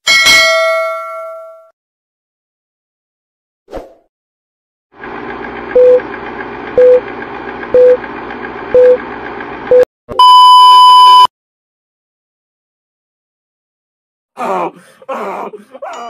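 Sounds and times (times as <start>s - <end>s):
longer higher beep: 9.7s - 11.3s
short beeps: 9.7s - 11.3s.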